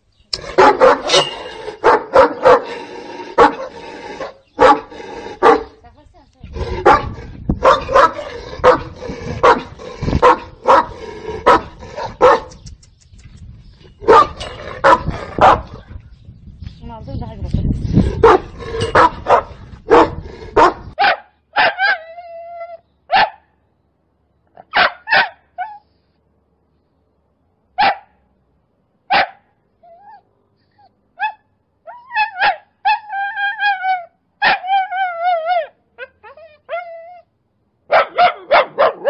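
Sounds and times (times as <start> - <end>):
dogs barking: 0.4 - 5.8, 6.7 - 12.6, 14.0 - 15.8, 18.1 - 22.0, 24.6 - 25.8, 27.8 - 28.2, 37.9 - 39.0
dog yips and whining: 0.7 - 1.6, 21.0 - 23.4, 24.7 - 25.9, 29.2 - 37.3.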